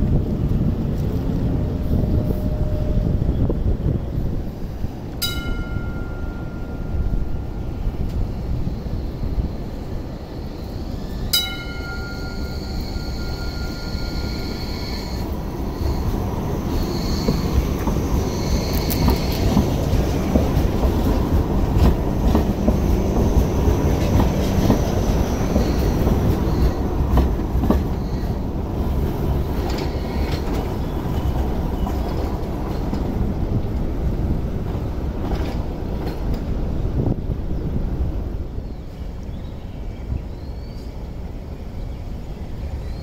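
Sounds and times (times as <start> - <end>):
train wheels rumbling on rails: 0.0 - 43.0
faint high wheel squeal: 5.8 - 19.5, 24.8 - 26.8, 29.6 - 32.0
wheels clicking over rail joints: 15.2 - 36.6.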